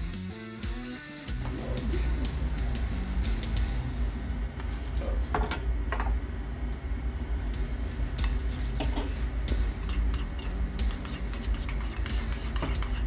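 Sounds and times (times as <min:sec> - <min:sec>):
low steady rumble: 0:01.4 - 0:09.9
utensils clinking against bowl: 0:08.2 - 0:13.0.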